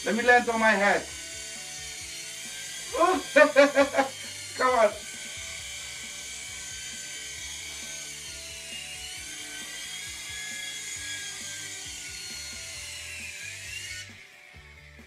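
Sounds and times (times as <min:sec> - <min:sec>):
toy helicopter rotor whine: 0:00.0 - 0:15.0.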